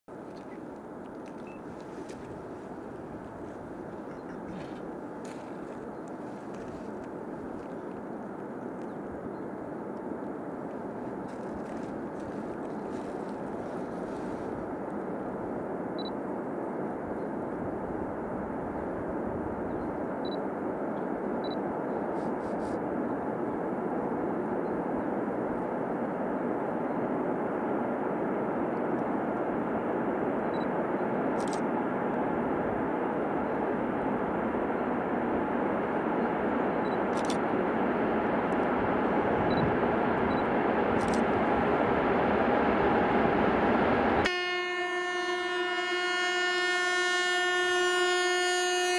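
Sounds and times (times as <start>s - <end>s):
diesel locomotive drone: 0.1s - 48.9s
distant train rumble: 0.1s - 48.9s.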